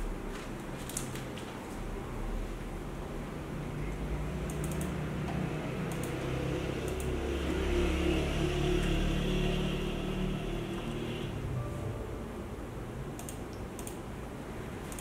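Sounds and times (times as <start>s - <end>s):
laptop keys clicking: 4.4s - 5.0s, 5.9s - 6.2s, 13.2s - 14.0s.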